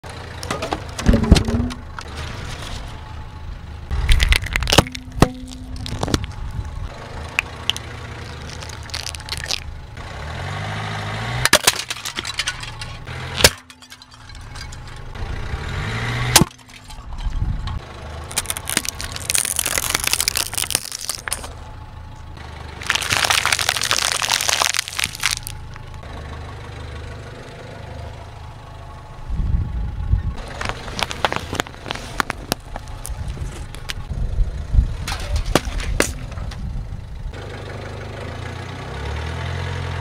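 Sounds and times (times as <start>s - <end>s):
tyre crushing plastic: 4.0s - 6.4s, 7.7s - 9.7s, 18.3s - 21.6s, 22.8s - 25.9s, 30.5s - 33.8s
plastic cracking and snapping: 4.1s - 6.4s, 7.4s - 9.7s, 18.3s - 21.5s, 22.8s - 25.9s, 30.5s - 33.9s.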